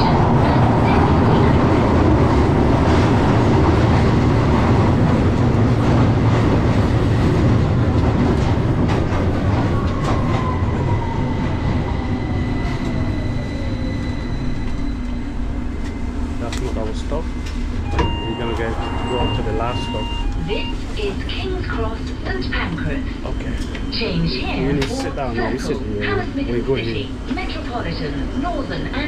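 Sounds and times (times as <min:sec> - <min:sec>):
train rumbling in tunnel: 0:00.0 - 0:29.0
train braking whine: 0:17.4 - 0:21.2.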